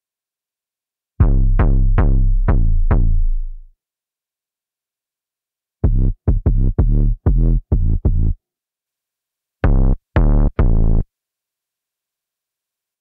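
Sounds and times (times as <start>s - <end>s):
deep synth bass notes: 1.2s - 3.6s, 5.8s - 8.4s, 9.6s - 11.0s.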